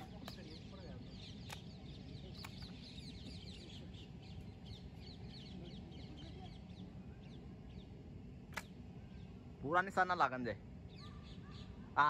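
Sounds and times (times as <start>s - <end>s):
low steady hum: 0.0s - 12.0s
small birds chirping: 0.0s - 12.0s
faint sharp click: 0.2s - 0.4s, 1.4s - 1.7s, 8.5s - 8.8s.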